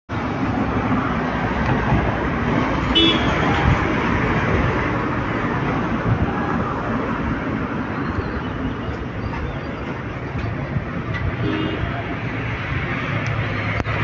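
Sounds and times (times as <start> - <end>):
road traffic rushing: 0.1 - 14.0
vehicle horn toot: 3.0 - 3.3, 11.4 - 11.8.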